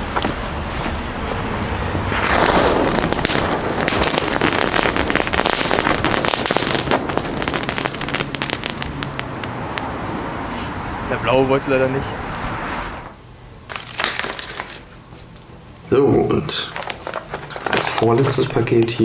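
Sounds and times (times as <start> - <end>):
firework fountain hissing sparks: 0.0 - 9.9, 13.7 - 14.9
firework crackling: 0.0 - 10.0, 12.9 - 15.0, 16.5 - 19.0.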